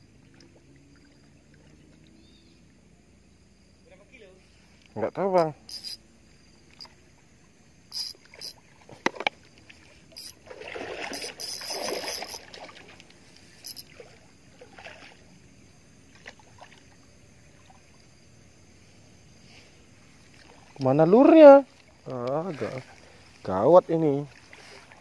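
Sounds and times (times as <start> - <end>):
fish splashing in water: 9.6 - 13.0.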